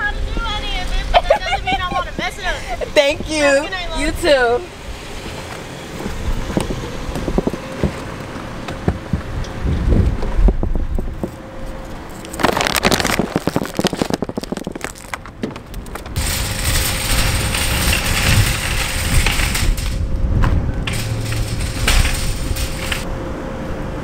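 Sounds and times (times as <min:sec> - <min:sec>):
outdoor rush of wind or traffic: 0:00.0 - 0:24.0
shopping cart rattling on pavement: 0:12.2 - 0:20.1, 0:20.8 - 0:23.1.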